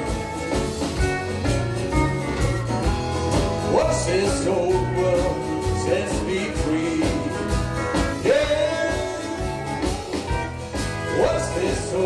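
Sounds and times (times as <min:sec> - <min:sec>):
acoustic guitar: 0:00.0 - 0:12.0
bass: 0:00.0 - 0:12.0
drums: 0:00.0 - 0:12.0
pedal steel guitar: 0:00.0 - 0:12.0.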